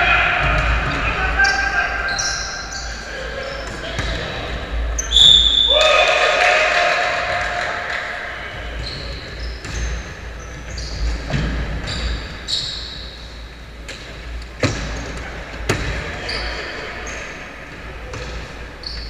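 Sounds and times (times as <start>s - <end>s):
loud shout: 0.0s - 2.7s, 5.2s - 8.4s
basketball bouncing: 14.6s - 16.1s.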